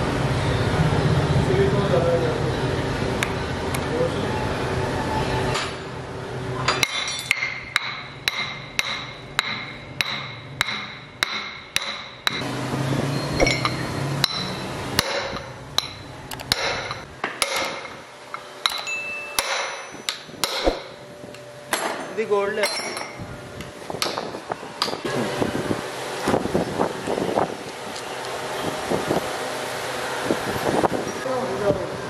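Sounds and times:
hammer striking metal punch: 0:06.7 - 0:12.5, 0:13.4 - 0:21.0.

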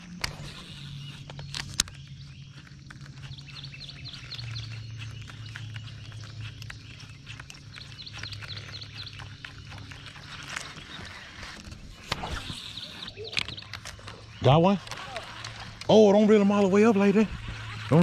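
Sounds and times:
sharp clicks: 0:00.0 - 0:18.0
animal chirping: 0:12.2 - 0:15.4.

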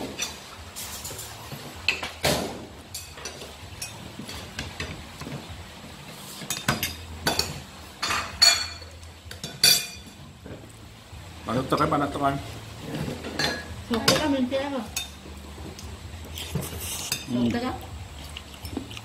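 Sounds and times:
spoons and plates clinking: 0:06.4 - 0:10.2.

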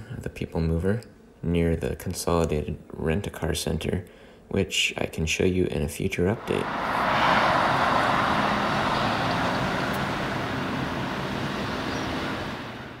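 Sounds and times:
car driving road noise: 0:06.3 - 0:13.0.

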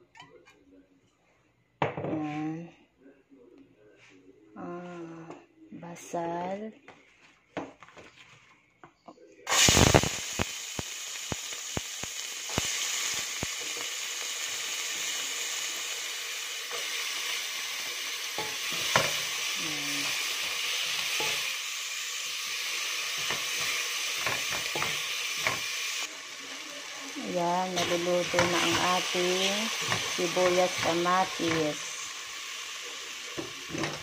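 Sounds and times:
onion sizzling in hot oil: 0:09.5 - 0:34.0.

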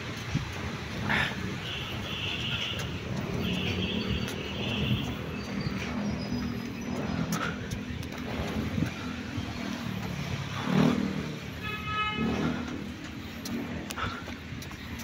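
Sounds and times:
road traffic passing: 0:00.0 - 0:15.0
vehicle horn toot: 0:01.6 - 0:02.8, 0:11.6 - 0:12.6.

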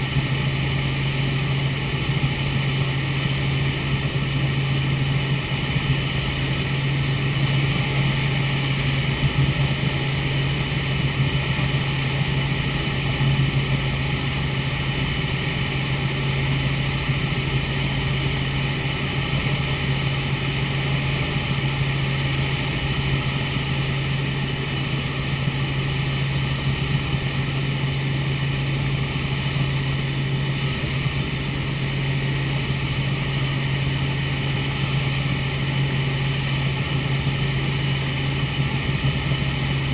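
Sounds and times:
helicopter engine and rotors droning: 0:00.0 - 0:39.9.

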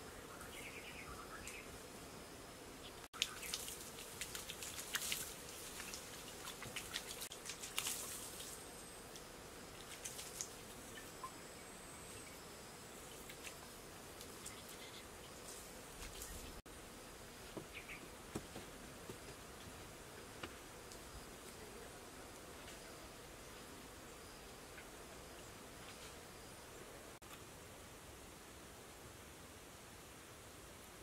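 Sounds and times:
faint insect buzz: 0:00.0 - 0:31.0
water splashing onto grass: 0:03.2 - 0:08.6, 0:09.8 - 0:10.7.

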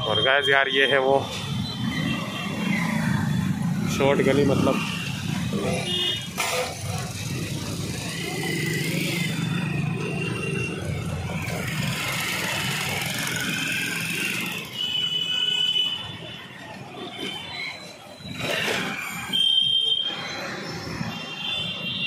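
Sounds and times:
motorcycles driving slowly: 0:01.0 - 0:15.2.

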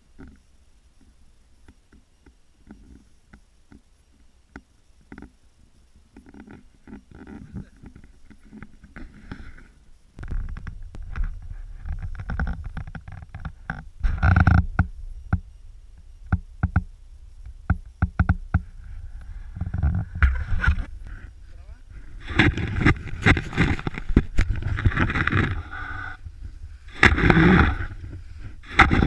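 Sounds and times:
microphone handling noise: 0:06.2 - 0:29.0
wind rumble: 0:10.2 - 0:29.0
skis knocking and scraping on snow: 0:17.6 - 0:29.0.

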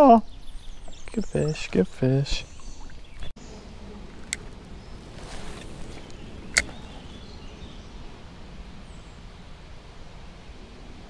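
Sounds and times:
outdoor background noise: 0:00.0 - 0:11.0
reel bail snapping shut: 0:05.6 - 0:06.8
light click: 0:06.5 - 0:06.8.

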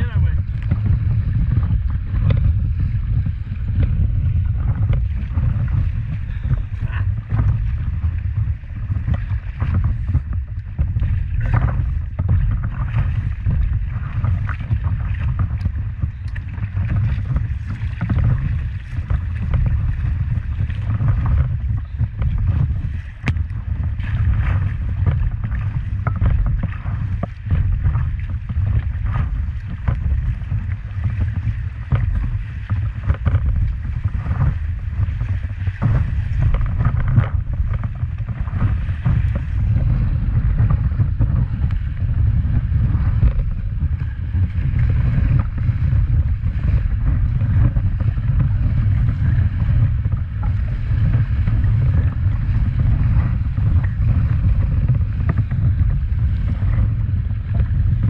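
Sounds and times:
wind rumble on microphone: 0:00.0 - 0:58.0.

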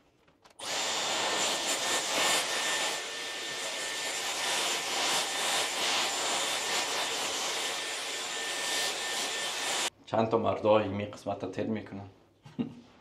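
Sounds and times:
hair styler blowing air: 0:00.6 - 0:09.9.

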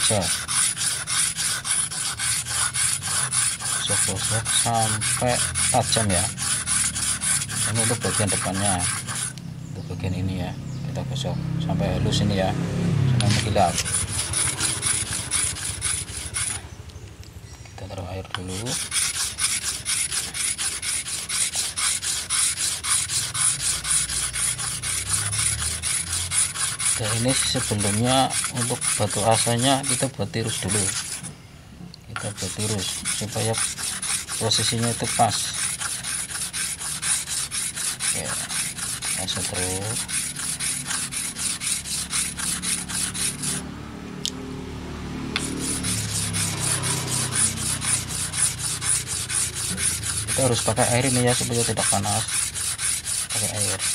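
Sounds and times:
blade sharpening on whetstone: 0:00.0 - 0:09.4, 0:13.2 - 0:16.6, 0:18.4 - 0:31.3, 0:32.2 - 0:43.6, 0:45.4 - 0:53.9.

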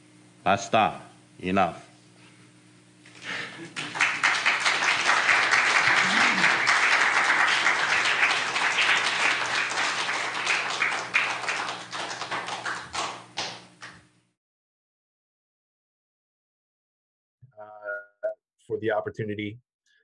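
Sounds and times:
audience applauding: 0:03.6 - 0:13.9.

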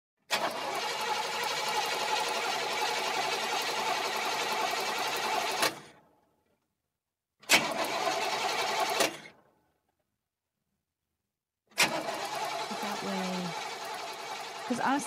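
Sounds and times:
car engine cranking: 0:00.3 - 0:06.0, 0:07.4 - 0:09.4, 0:11.7 - 0:15.0.

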